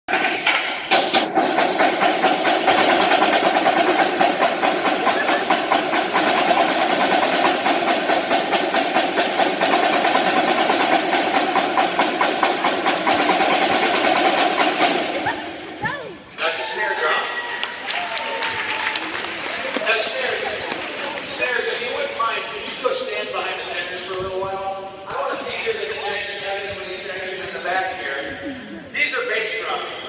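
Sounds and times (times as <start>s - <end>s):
marching drumline playing: 0.1s - 24.1s.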